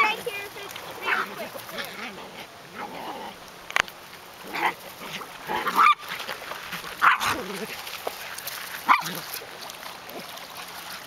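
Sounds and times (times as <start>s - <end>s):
puppies yipping: 4.5s - 7.8s, 8.7s - 9.3s.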